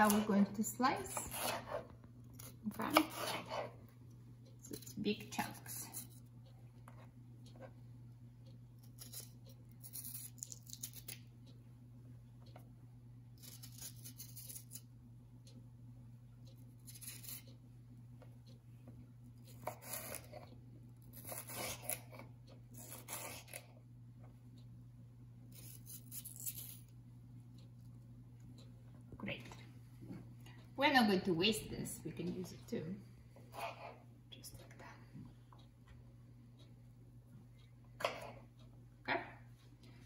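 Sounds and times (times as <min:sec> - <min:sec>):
steady low hum: 0:00.0 - 0:40.0
knife slicing pepper on board: 0:01.1 - 0:03.8.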